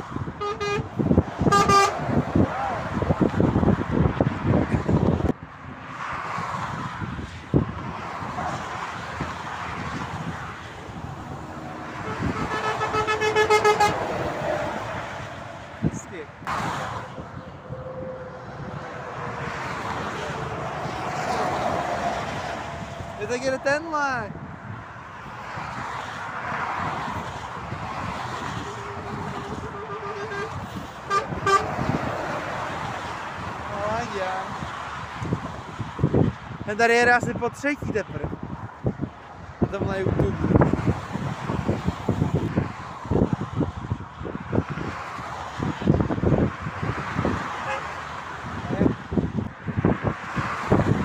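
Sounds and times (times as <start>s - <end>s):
passing highway traffic: 0.0s - 51.0s
vehicle horn blast: 0.4s - 2.0s, 12.0s - 14.1s, 28.6s - 31.8s, 47.6s - 47.9s.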